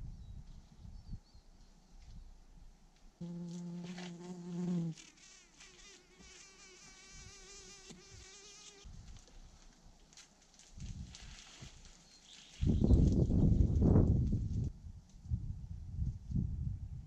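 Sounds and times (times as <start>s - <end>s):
flying insect buzzing: 3.2s - 8.9s.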